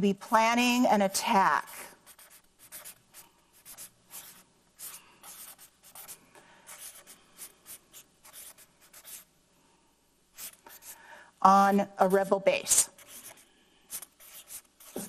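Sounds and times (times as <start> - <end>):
marker writing on paper: 1.6 - 9.3, 10.4 - 11.0, 12.0 - 15.0.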